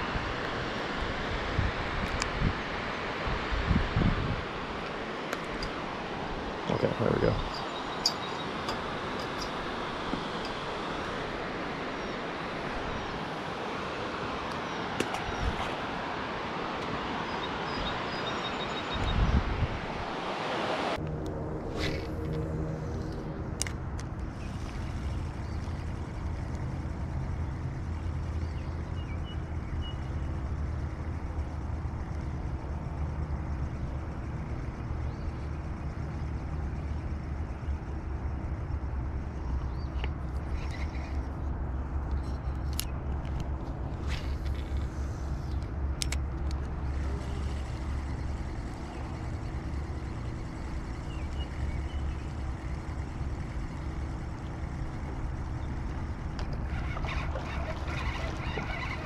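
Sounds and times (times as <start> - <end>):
low rumble: 21.0 - 28.8.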